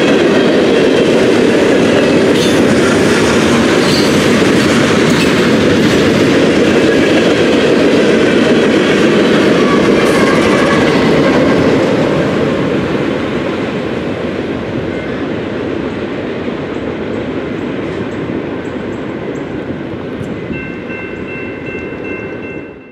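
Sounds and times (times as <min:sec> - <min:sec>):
freight train wheels rumbling: 0:00.0 - 0:22.9.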